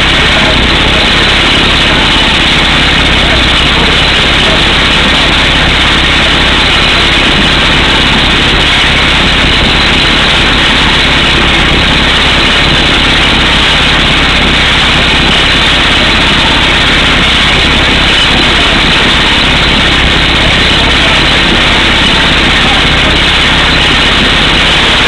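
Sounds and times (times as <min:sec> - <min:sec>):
air hammer drilling rock: 0:00.0 - 0:25.0
rig engine running: 0:00.0 - 0:25.0.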